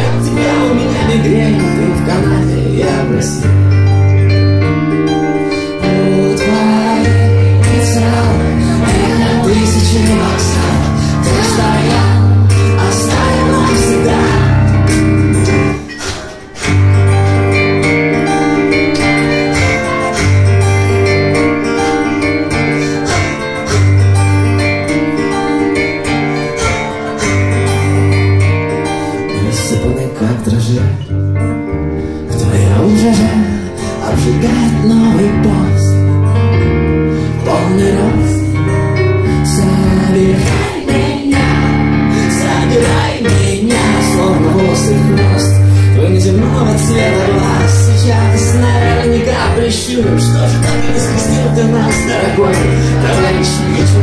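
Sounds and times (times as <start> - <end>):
low bass notes: 0.0 - 15.8, 16.7 - 54.0
live keyboard and acoustic guitar: 0.0 - 54.0.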